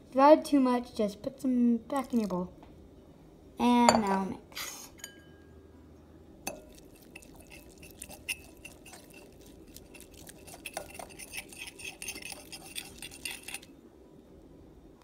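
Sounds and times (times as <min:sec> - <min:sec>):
whisk clinking against glass bowl: 0:06.5 - 0:13.7.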